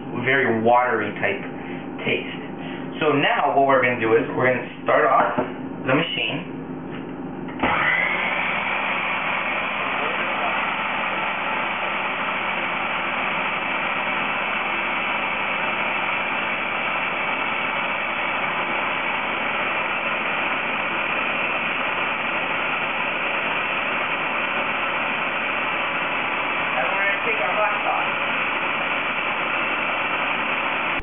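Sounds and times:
food processor whirring: 7.5s - 31.0s.

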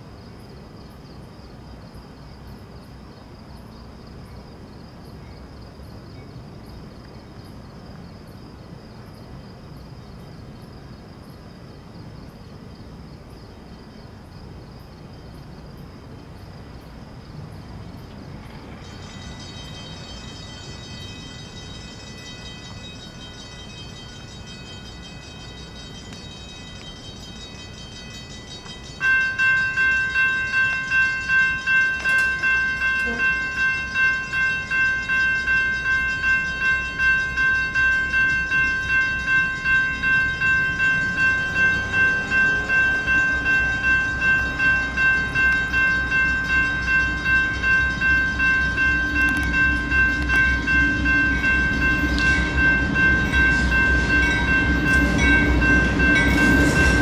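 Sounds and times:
freight train rumble: 0.0s - 57.0s
railroad crossing bells ringing: 18.7s - 57.0s.

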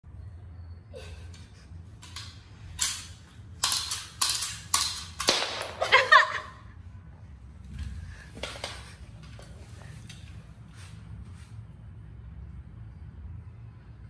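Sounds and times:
toy pistol clicking: 2.0s - 5.6s.

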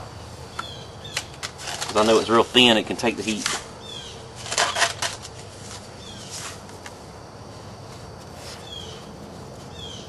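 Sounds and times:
bird chirping: 0.5s - 1.4s, 3.8s - 4.9s, 6.0s - 6.4s, 8.6s - 9.1s, 9.7s - 10.0s
rocks scraping in sand: 1.4s - 7.0s.

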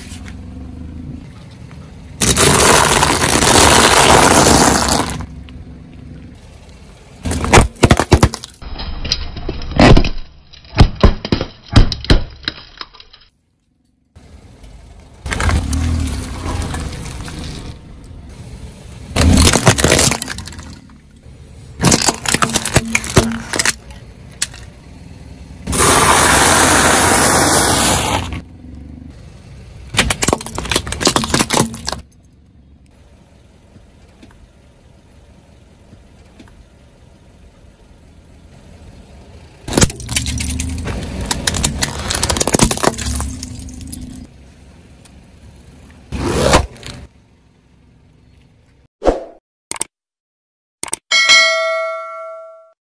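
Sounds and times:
plastic cracking under a car tyre: 2.2s - 5.3s, 19.2s - 20.9s, 21.8s - 24.7s, 29.9s - 32.2s, 39.7s - 44.1s
loud rushing hiss: 25.7s - 28.2s.

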